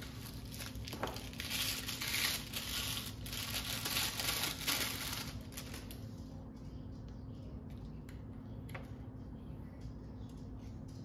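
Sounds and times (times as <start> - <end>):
wrapping paper crinkling: 0.0 - 6.2.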